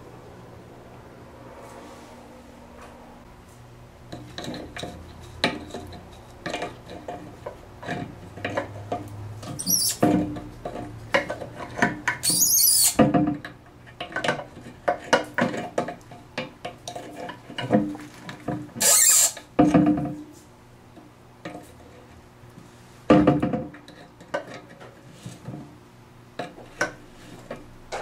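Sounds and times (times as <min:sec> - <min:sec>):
harsh high-pitched sounds: 0:18.8 - 0:19.4.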